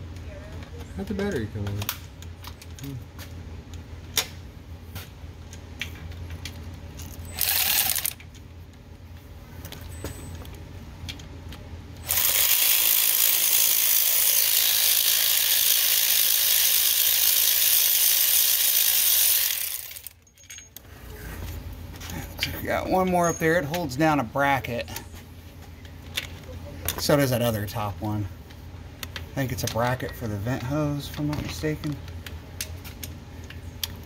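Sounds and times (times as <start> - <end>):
cordless power ratchet running: 7.3 - 8.2, 12.0 - 20.2.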